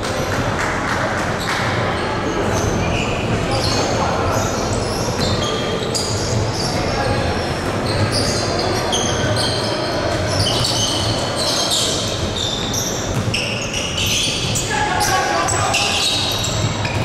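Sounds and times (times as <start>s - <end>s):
sneaker squeaks: 1.2s - 17.0s
basketball bouncing on court: 4.9s - 17.0s.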